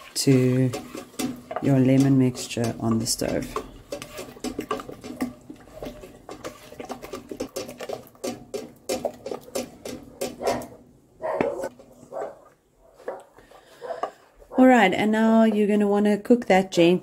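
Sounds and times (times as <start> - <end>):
wooden spoon scraping saucepan: 0.0 - 10.8.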